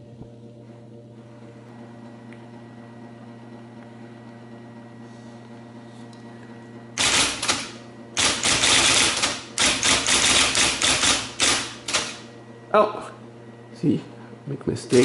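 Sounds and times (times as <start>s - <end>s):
typewriter keystrokes clattering: 7.0s - 12.2s
typewriter motor humming: 7.0s - 12.4s, 14.8s - 15.0s.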